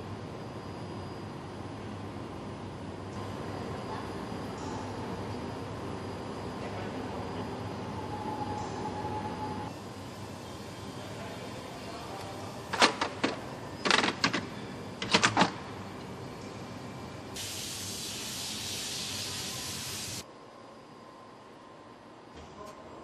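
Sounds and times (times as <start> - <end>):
steady machine hum: 0.0 - 18.6
steady hiss: 17.4 - 20.2.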